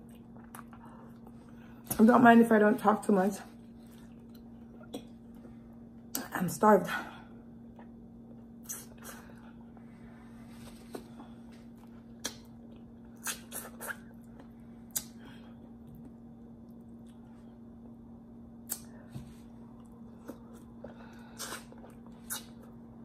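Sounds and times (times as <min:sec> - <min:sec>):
faint steady hum: 0:00.0 - 0:23.0
wet eating smacks: 0:11.9 - 0:17.2, 0:20.2 - 0:22.7
chewing and finger-sucking clicks: 0:12.2 - 0:15.2, 0:18.6 - 0:19.0.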